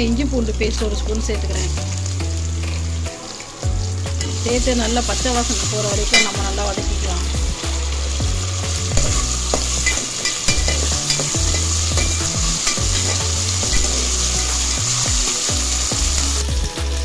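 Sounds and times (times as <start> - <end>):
paste sizzling in hot oil: 1.0 - 17.0
steel spatula scraping pot: 9.0 - 14.4.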